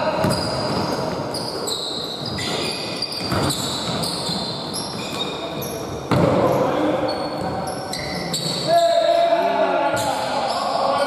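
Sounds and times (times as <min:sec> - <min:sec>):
sneakers squeaking: 0:00.0 - 0:09.2, 0:09.8 - 0:11.0
basketball bouncing: 0:03.2 - 0:04.2, 0:06.1 - 0:06.4.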